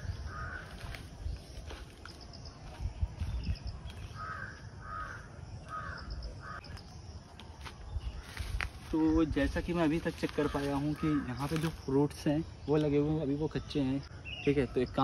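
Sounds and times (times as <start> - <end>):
bird calling: 0.0 - 8.6.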